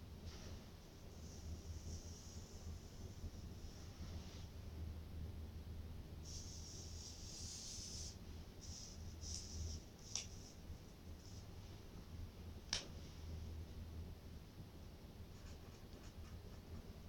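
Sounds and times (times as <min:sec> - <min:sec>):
paper cards sliding on cloth: 0:06.3 - 0:10.6.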